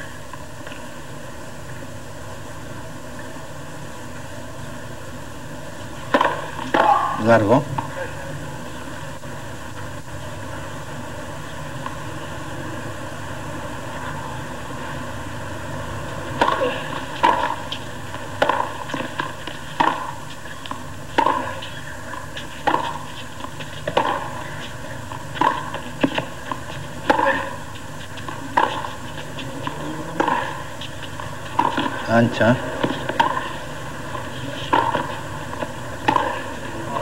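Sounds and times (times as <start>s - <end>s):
crowd and broadcast hiss: 0.0s - 37.0s
tennis ball hit by rackets: 6.0s - 7.2s, 16.2s - 32.0s, 32.6s - 37.0s
ball bouncing: 18.4s - 21.8s, 22.4s - 24.4s, 25.1s - 27.5s, 28.1s - 32.1s, 32.8s - 36.6s.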